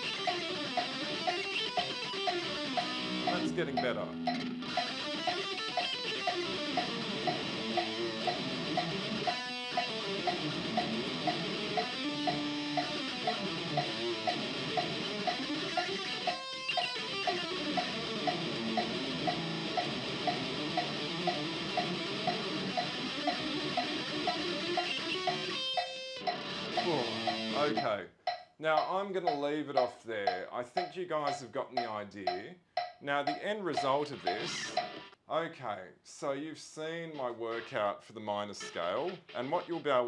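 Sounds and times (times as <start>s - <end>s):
electric guitar scale runs: 0.0s - 29.4s, 32.8s - 35.1s
metronome clicking: 0.0s - 35.2s.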